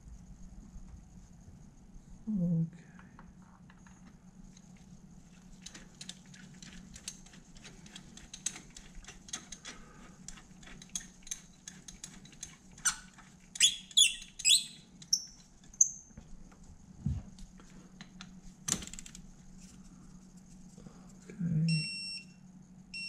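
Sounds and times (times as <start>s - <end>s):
short squeaks: 12.8s - 16.1s.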